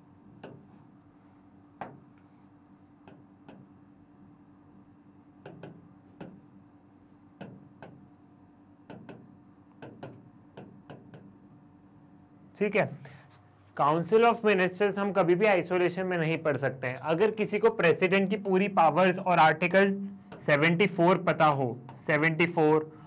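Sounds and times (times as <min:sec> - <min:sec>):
faint steady hum: 0:00.0 - 0:23.0
pen tapping on glass screen: 0:00.4 - 0:00.7, 0:01.8 - 0:02.3, 0:03.0 - 0:03.8, 0:05.4 - 0:06.5, 0:07.4 - 0:08.1, 0:08.9 - 0:11.4
faint scratches: 0:01.9 - 0:05.5, 0:06.2 - 0:12.4, 0:18.1 - 0:22.6.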